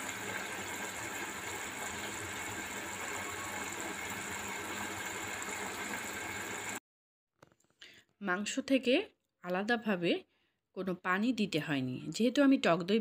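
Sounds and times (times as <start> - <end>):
kitchen hum with hiss: 0.0 - 6.8.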